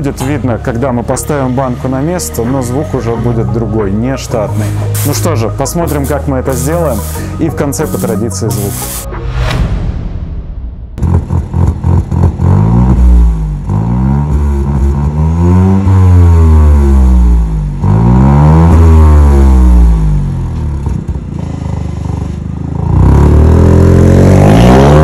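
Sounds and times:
car engine revving: 10.7 - 21.5, 22.8 - 25.0.

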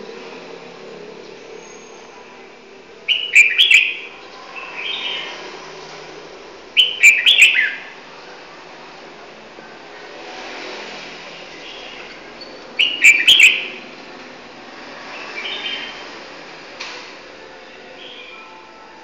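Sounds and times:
songbird singing: 0.0 - 5.6, 6.7 - 8.4, 11.3 - 14.3, 15.1 - 16.2, 17.5 - 18.8.

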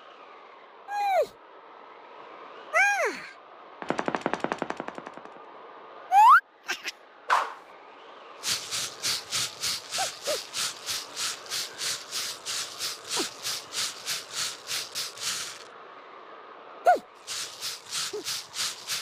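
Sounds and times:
shovel scraping snow: 8.4 - 15.7, 16.9 - 19.0.

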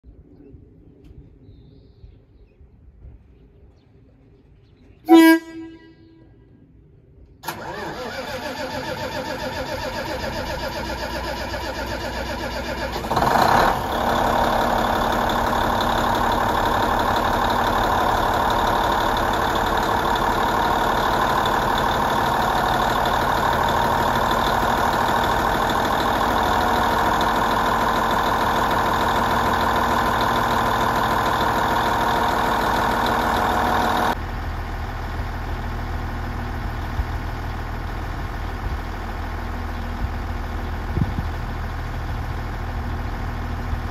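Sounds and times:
loud engine burst: 7.4 - 34.2
diesel engine idling: 7.4 - 43.9.

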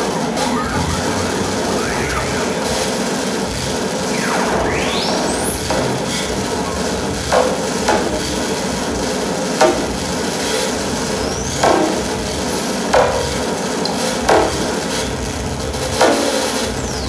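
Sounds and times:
sharp struck hits sliding down: 0.1 - 6.1.

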